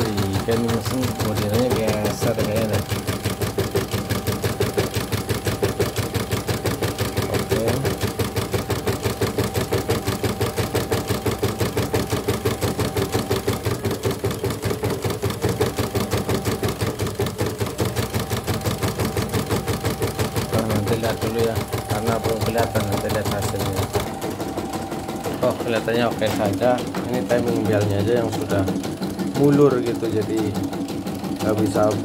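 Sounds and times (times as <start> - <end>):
embroidery machine stitching: 0.0 - 32.0.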